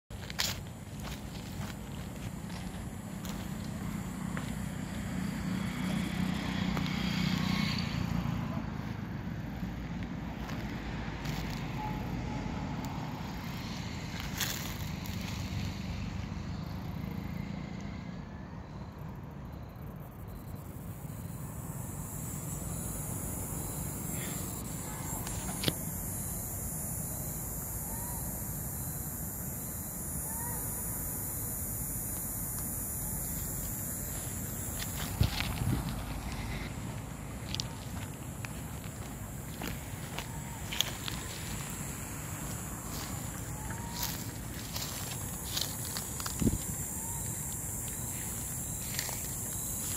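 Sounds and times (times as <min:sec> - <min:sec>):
cicada buzzing: 0:00.1 - 0:49.9
vehicle engine passing: 0:01.0 - 0:18.3, 0:32.0 - 0:46.7.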